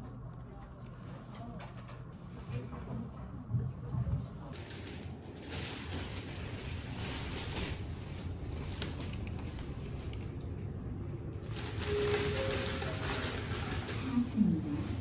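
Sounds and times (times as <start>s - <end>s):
low hum: 0.0s - 15.0s
plastic bag rustling: 4.5s - 15.0s.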